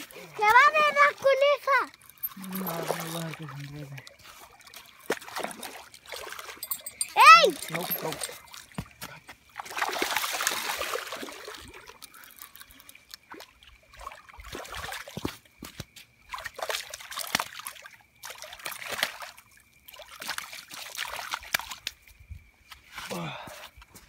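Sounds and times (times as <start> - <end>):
trickling water: 0.0 - 23.8
fish splashing in water: 2.2 - 6.6, 9.5 - 15.3, 16.3 - 22.0.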